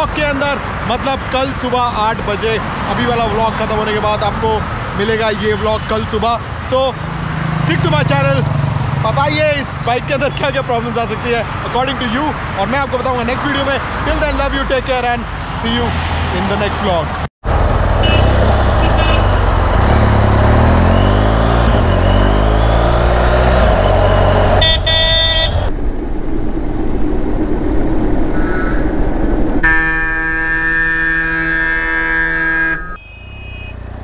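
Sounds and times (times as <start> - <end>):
motorcycle engine accelerating: 17.4 - 27.6
vehicle horns honking: 18.0 - 19.6, 20.7 - 25.7, 29.6 - 34.0.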